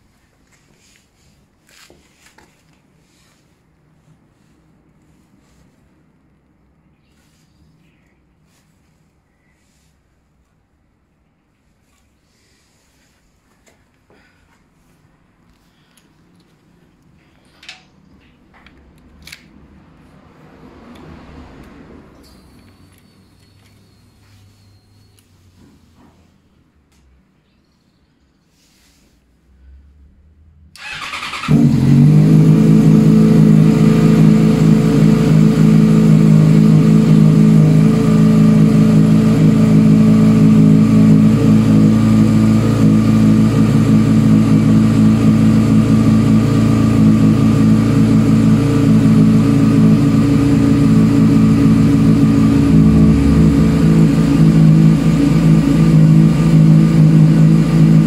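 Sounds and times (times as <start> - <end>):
motorcycle engine starting: 30.7 - 58.0
motorcycle engine idling: 30.8 - 58.0.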